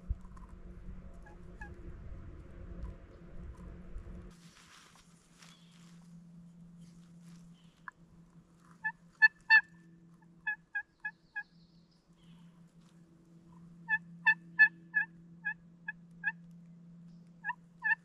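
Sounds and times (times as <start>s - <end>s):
turkey call yelps: 8.7s - 11.5s, 13.8s - 16.4s, 17.4s - 18.0s.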